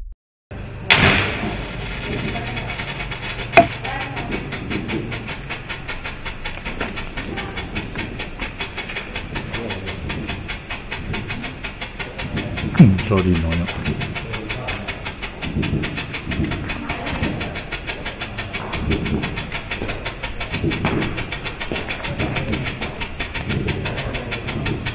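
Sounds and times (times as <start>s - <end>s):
rattle of strobe pops: 0.6s - 24.9s
sharp firework bang: 0.9s - 1.8s
firework hissing spray: 0.9s - 7.2s.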